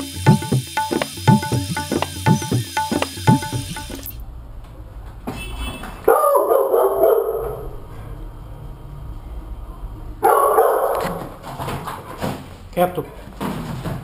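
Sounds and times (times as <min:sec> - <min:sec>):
dog barking: 0:06.1 - 0:07.8, 0:10.2 - 0:11.3.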